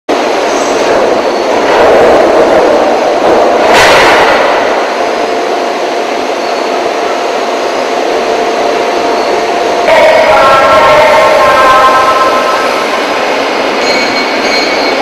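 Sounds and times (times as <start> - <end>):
industrial machinery din: 0.1 - 15.0
humming tone: 9.2 - 15.0
sharp burst of noise: 9.9 - 13.8.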